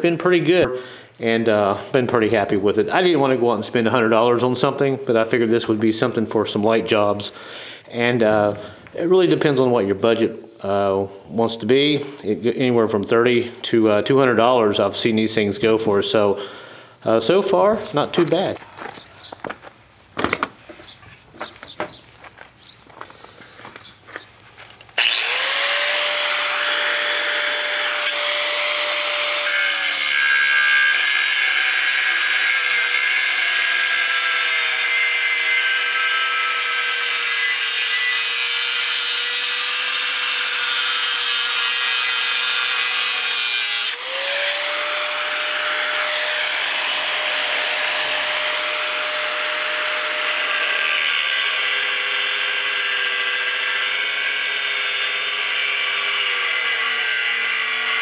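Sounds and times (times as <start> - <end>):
angle grinder cutting steel: 24.9 - 58.0.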